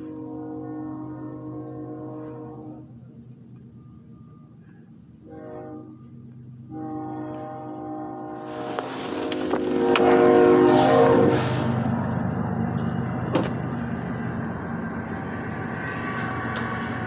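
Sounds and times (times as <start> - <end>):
train horn blasts: 0.0 - 12.3.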